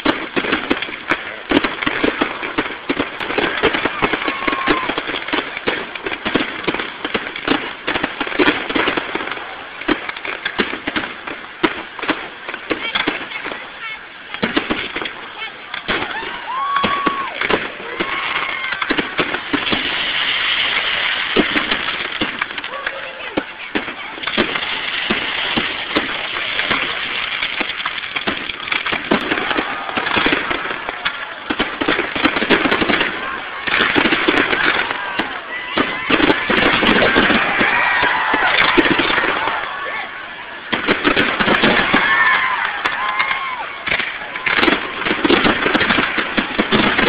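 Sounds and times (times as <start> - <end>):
fireworks bursting and crackling: 0.0 - 47.0.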